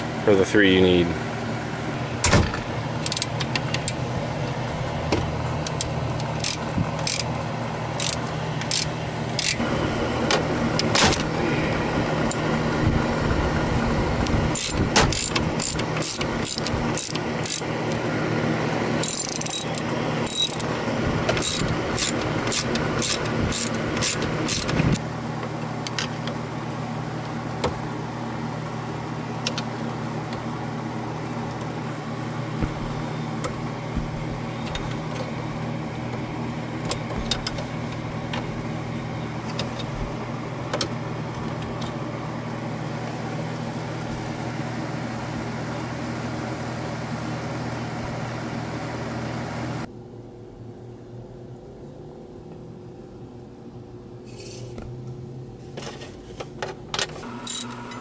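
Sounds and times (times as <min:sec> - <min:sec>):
steady low hum: 0:00.0 - 0:58.0
ratchet wrench clicking: 0:05.7 - 0:07.3, 0:08.0 - 0:09.6, 0:14.6 - 0:17.7, 0:19.0 - 0:20.7, 0:21.4 - 0:24.8.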